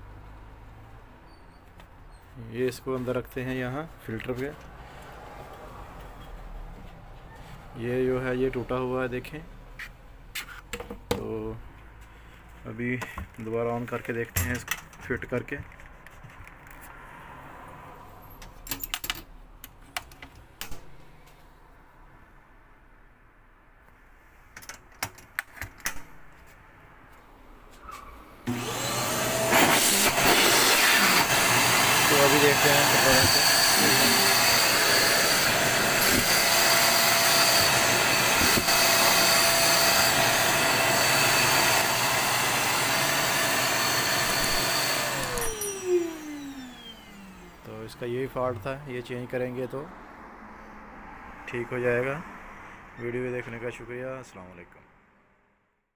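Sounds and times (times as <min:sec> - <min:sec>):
vacuum cleaner running: 0:28.4 - 0:47.8
motor whine spinning down: 0:28.5 - 0:47.7.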